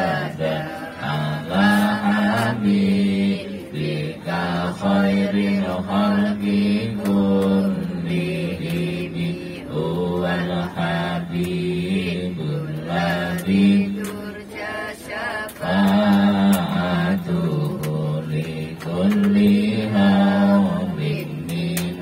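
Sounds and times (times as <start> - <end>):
group chanting in unison: 0.0 - 22.0.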